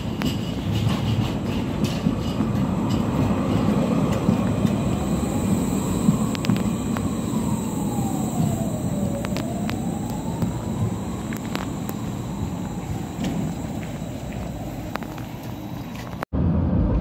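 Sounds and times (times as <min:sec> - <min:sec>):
tram wheels rumbling on rails: 0:00.0 - 0:17.0
electric motor whine: 0:03.0 - 0:16.2.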